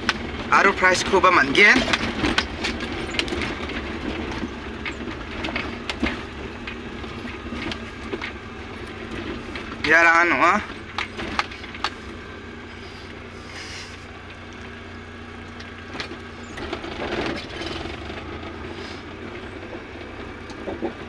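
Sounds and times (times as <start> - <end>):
sharp knocks or rattles: 0.0 - 12.1
car engine low hum: 0.0 - 21.0.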